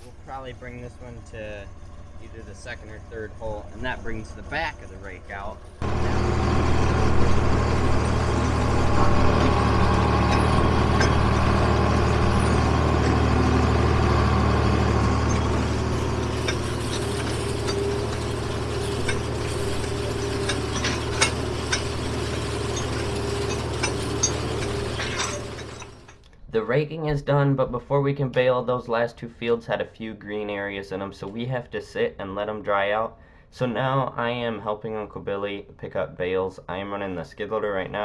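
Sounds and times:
tractor engine running: 0.0s - 26.2s.

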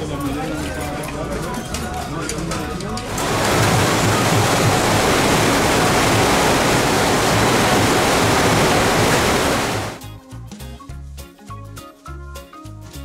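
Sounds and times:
music: 0.0s - 3.1s, 10.0s - 13.0s
water rushing over surf simulator: 3.0s - 10.0s.

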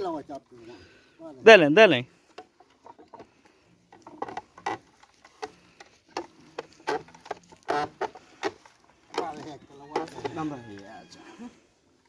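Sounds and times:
wooden press creaking and knocking: 2.3s - 10.4s.

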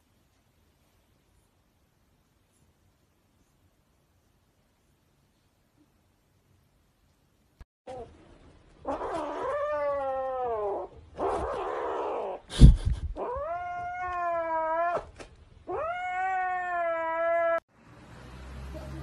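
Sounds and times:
kitten yowling: 8.8s - 12.4s, 13.2s - 15.1s, 15.7s - 17.6s.

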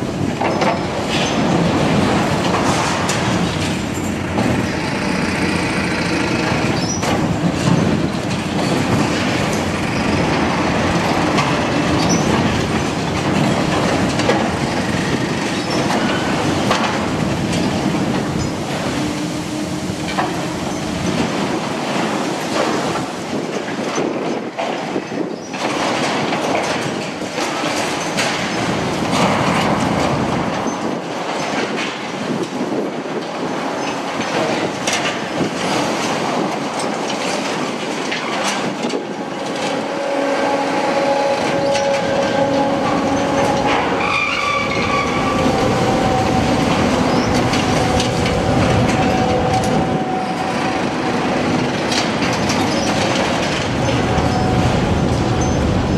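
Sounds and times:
metal screeching: 39.2s - 51.3s.

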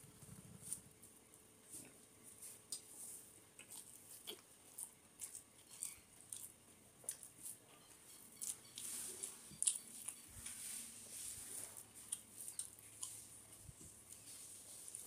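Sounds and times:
chewing: 3.5s - 10.6s, 11.4s - 15.0s.

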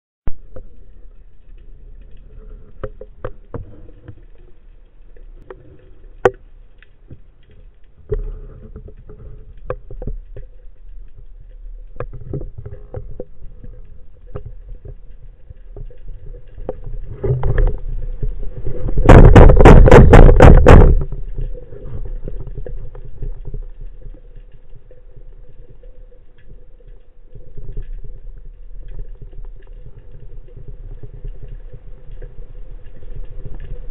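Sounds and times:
underwater clicks and crackles: 0.3s - 33.9s
low rumble: 10.6s - 27.3s.

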